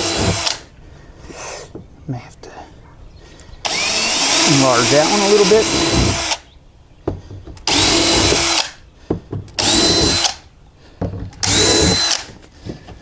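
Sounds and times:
power drill whining: 0:00.0 - 0:00.7, 0:03.6 - 0:06.5, 0:07.6 - 0:08.8, 0:09.5 - 0:10.5, 0:11.4 - 0:12.4
small knocks: 0:07.0 - 0:10.2, 0:11.0 - 0:13.0.

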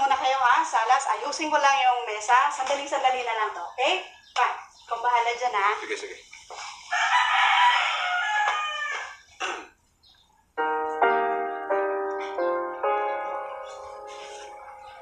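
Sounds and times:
rooster crowing: 0:06.9 - 0:09.3
piano background music: 0:10.4 - 0:15.0.

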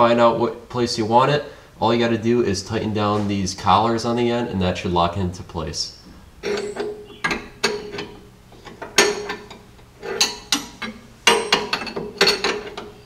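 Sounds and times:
wrench clinking on metal: 0:06.4 - 0:13.0.

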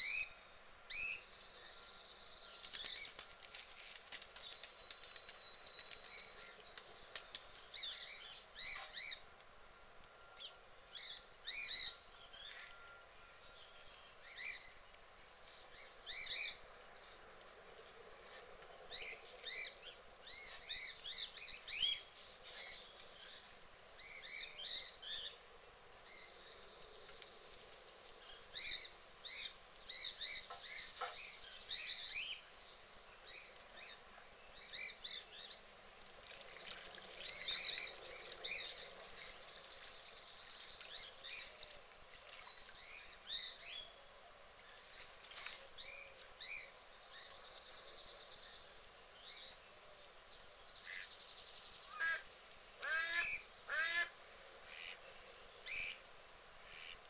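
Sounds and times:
small birds chirping: 0:00.0 - 0:09.2.

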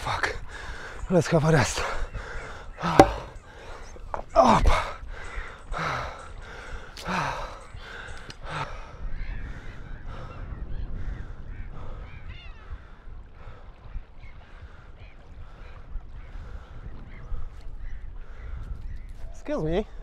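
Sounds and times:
wind rumble on microphone: 0:06.4 - 0:20.0.

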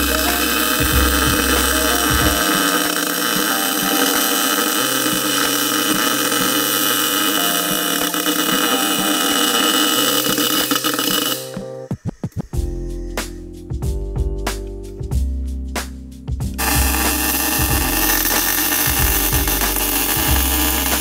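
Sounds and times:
background music with bass line: 0:00.0 - 0:09.4, 0:12.5 - 0:21.0
loud steady hiss: 0:00.0 - 0:11.6, 0:16.6 - 0:21.0.

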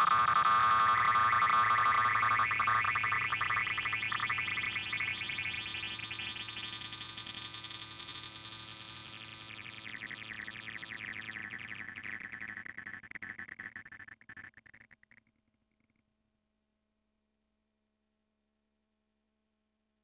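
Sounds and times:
distorted synthetic warble: 0:00.0 - 0:13.8.

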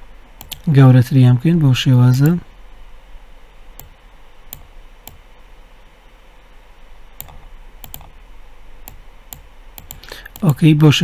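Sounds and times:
faint low hum: 0:00.0 - 0:11.0
computer mouse clicking: 0:00.4 - 0:00.7, 0:04.5 - 0:05.2, 0:07.2 - 0:08.2, 0:08.8 - 0:10.6.

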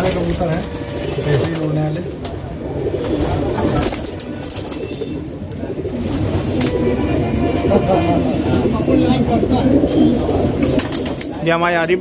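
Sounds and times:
pigeons cooing: 0:00.0 - 0:11.7.

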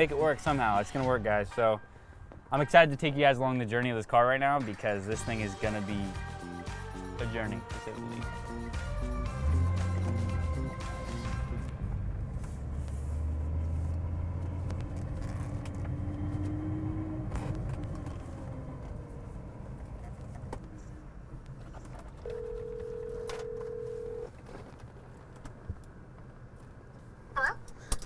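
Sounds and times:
car engine pulling away: 0:08.3 - 0:21.8.

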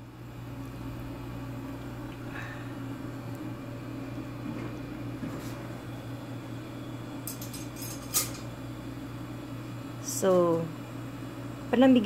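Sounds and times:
steady low hum: 0:00.0 - 0:12.0
metal tongs clinking on plate: 0:07.2 - 0:08.5.

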